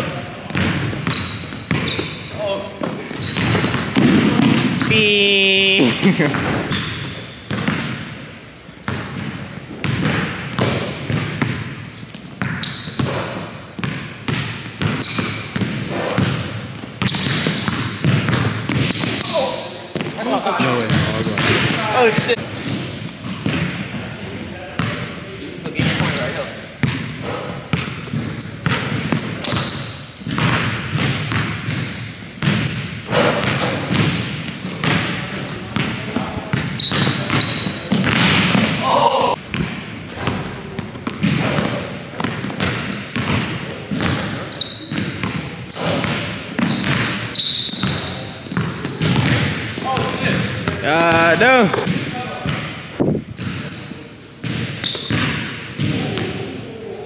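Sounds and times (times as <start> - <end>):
basketball bouncing on wooden floor: 0.5 - 2.1, 39.5 - 47.2, 47.8 - 50.8
sneakers squeaking on court: 0.5 - 24.0, 26.8 - 50.8, 51.8 - 56.4.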